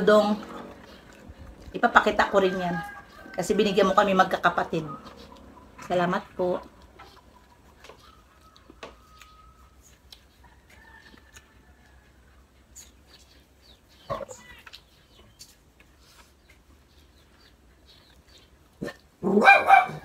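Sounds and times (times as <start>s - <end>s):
clicks of eating by hand: 0.4s - 3.2s, 6.6s - 19.2s.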